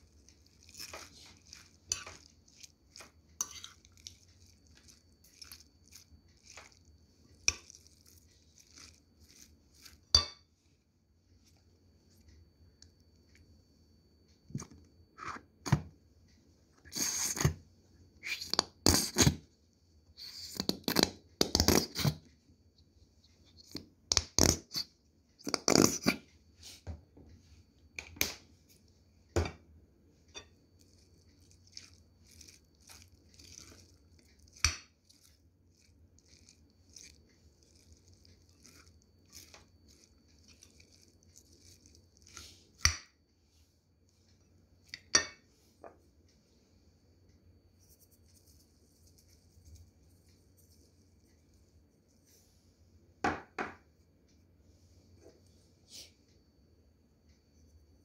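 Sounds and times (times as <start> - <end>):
moist crunching and scraping: 0.0 - 10.2, 30.7 - 42.8.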